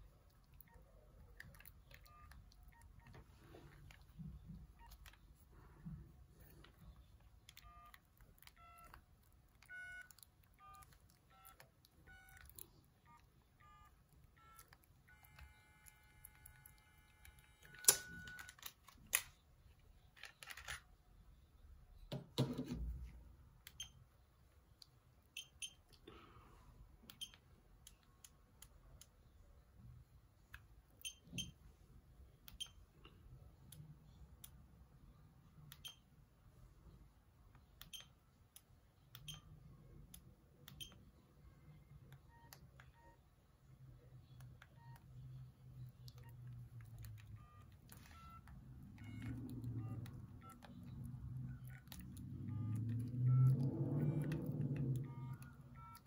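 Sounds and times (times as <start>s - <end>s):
phone beeping ringtone: 1.9s - 3.2s, 7.6s - 8.0s, 8.6s - 9.0s, 9.6s - 18.6s, 47.3s - 56.0s
phone being handled: 14.4s - 19.4s, 20.0s - 21.0s.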